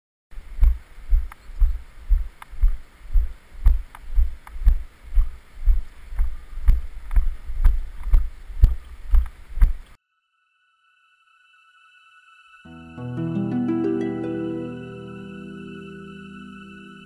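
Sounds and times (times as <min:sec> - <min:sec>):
footsteps on snow: 0:00.5 - 0:10.0.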